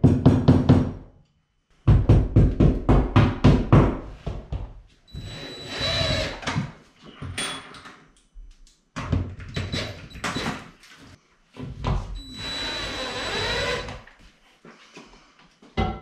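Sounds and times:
cordless drill boring: 5.1s - 6.4s, 12.2s - 14.0s.

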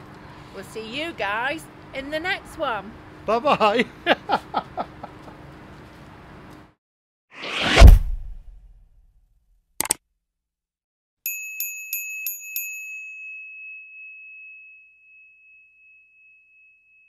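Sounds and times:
small bell dinging: 11.2s - 17.0s.

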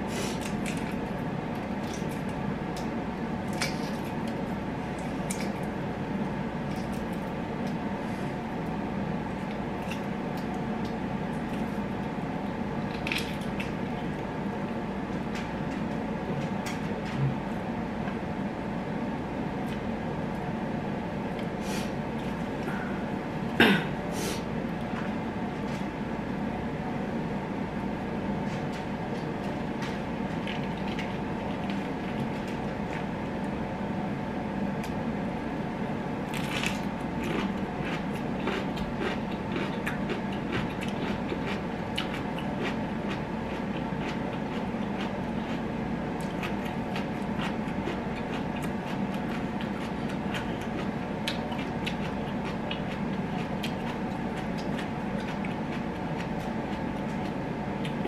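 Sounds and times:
background hum: 0.0s - 58.0s
chewing and mouth clicks: 36.3s - 45.6s, 46.2s - 58.0s.

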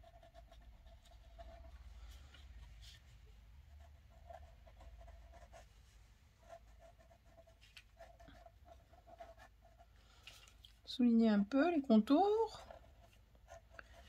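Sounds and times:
pen scratching on paper: 0.0s - 5.7s, 6.4s - 9.9s, 12.5s - 14.0s
low room hum: 0.0s - 14.0s.

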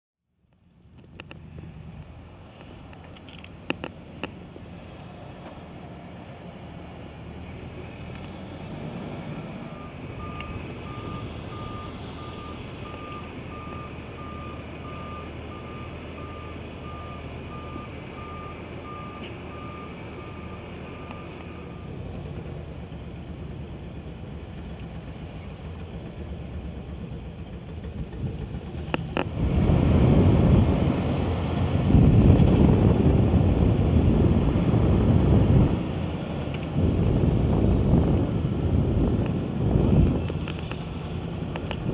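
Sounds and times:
diesel truck running: 0.5s - 41.9s
truck backup alarm beeping: 9.6s - 22.0s
wind buffeting microphone: 21.9s - 41.9s.

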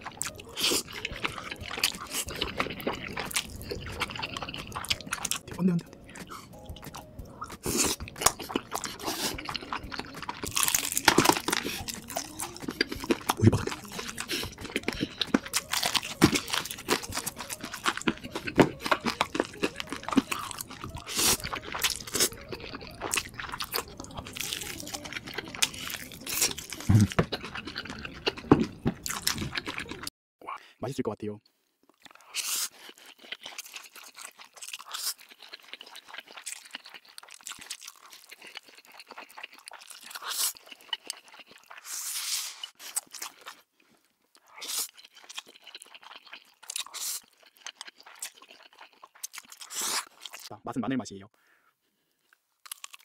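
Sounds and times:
crunching fried chicken: 0.0s - 30.1s, 31.9s - 50.5s, 52.6s - 53.0s.

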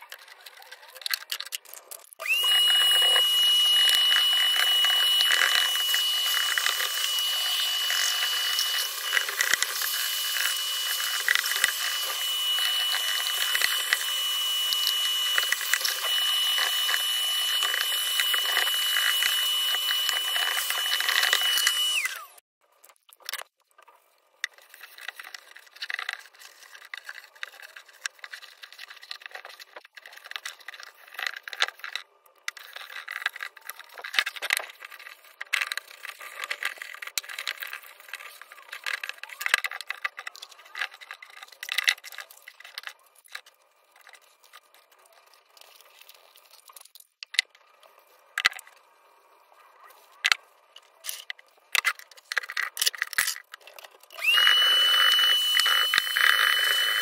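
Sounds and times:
vacuum cleaner whining: 2.2s - 22.4s, 54.1s - 57.0s.

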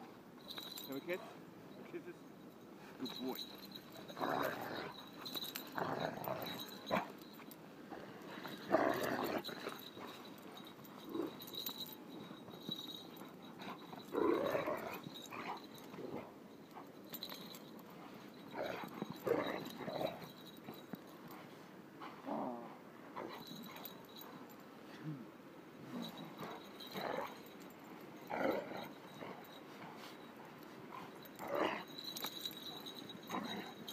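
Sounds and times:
dog growling barks: 8.7s - 9.6s.

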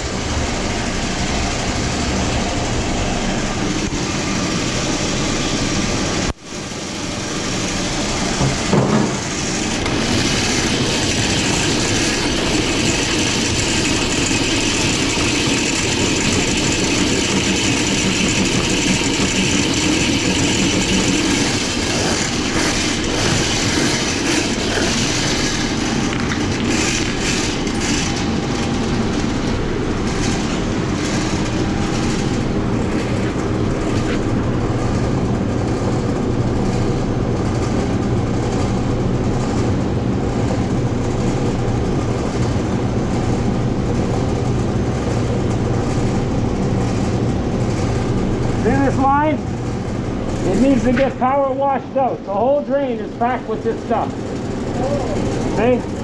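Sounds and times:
drain cleaning machine running: 0.0s - 56.0s
water running from hose: 9.4s - 28.2s.

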